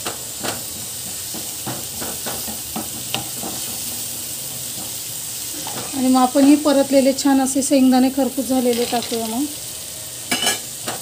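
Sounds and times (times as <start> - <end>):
spatula scraping and tapping pan: 0.0 - 5.0
masala sizzling in oil: 0.0 - 11.0.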